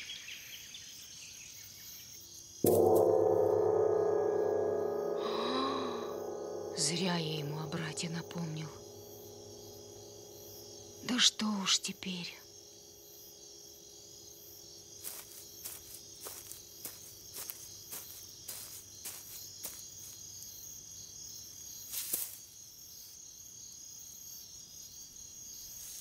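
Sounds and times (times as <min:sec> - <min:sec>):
crickets chirring: 0:00.0 - 0:26.0
soft footsteps: 0:15.2 - 0:20.2
rustle: 0:21.7 - 0:23.3, 0:25.7 - 0:26.0.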